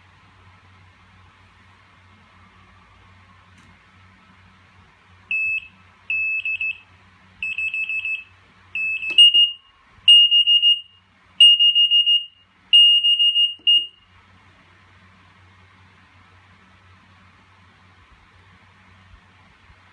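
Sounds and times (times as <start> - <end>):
timer alarm beeping: 5.3 - 6.8, 7.4 - 14.0.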